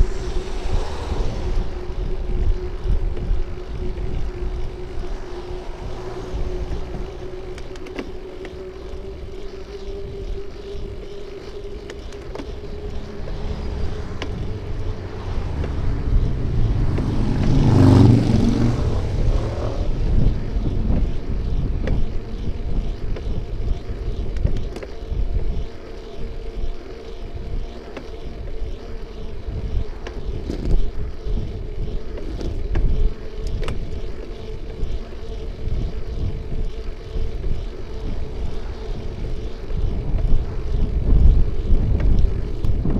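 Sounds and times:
vehicle passing close: 0.0 - 24.1
faint steady whine: 0.0 - 42.9
road rumble: 0.0 - 42.9
wind noise: 0.0 - 42.9.

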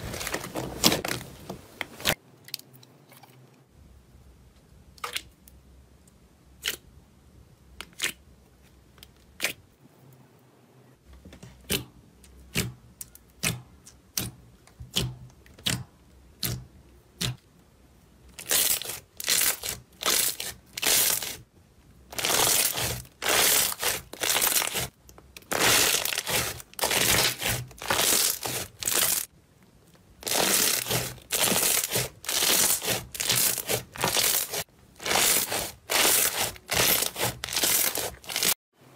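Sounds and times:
slime crackling squishes: 22.1 - 38.6.

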